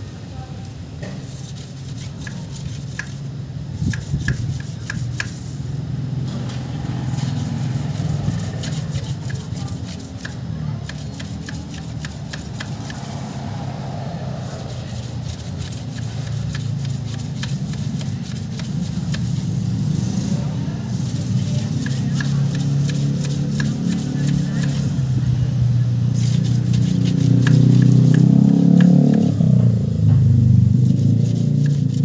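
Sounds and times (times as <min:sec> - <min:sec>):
wire rod rasping on metal tubes: 0:01.2 - 0:05.8, 0:07.0 - 0:13.3, 0:14.4 - 0:19.6, 0:20.9 - 0:25.1, 0:26.2 - 0:29.3, 0:30.7 - 0:32.0.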